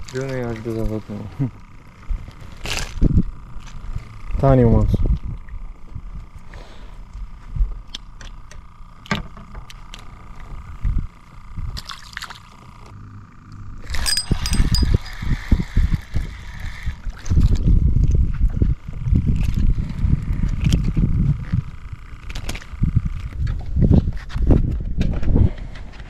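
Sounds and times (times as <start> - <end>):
fishing reel line hissing: 13.8 - 17.0
fishing tackle clicking: 14.0 - 15.2.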